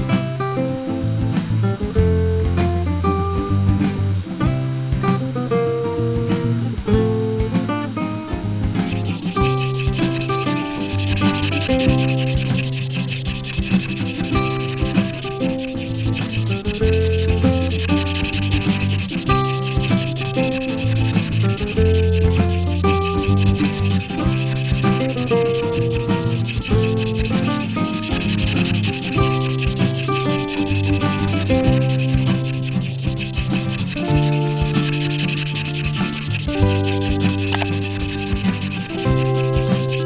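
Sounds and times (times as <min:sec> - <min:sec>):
background music: 0:00.0 - 0:40.0
marker scratching on paper: 0:08.8 - 0:40.0.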